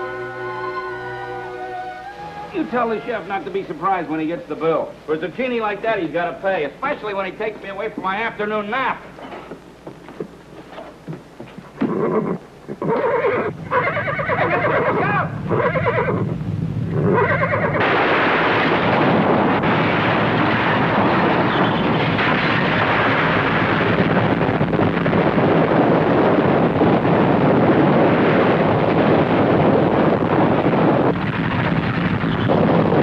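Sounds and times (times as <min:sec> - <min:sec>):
horse neighing: 0:11.8 - 0:16.3, 0:16.9 - 0:17.8
rumbling roar of buildings collapsing: 0:17.6 - 0:33.0.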